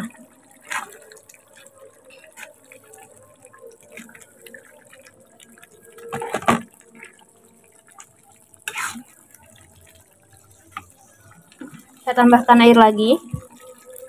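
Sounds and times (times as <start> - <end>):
sauce simmering with bubbling pops: 0.0 - 14.0
metal spoon stirring: 8.6 - 12.0.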